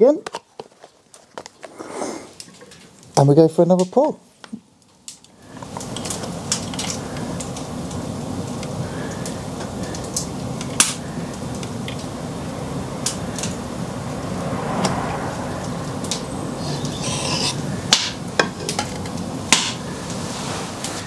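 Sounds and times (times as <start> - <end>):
steady low hum: 5.5 - 20.2.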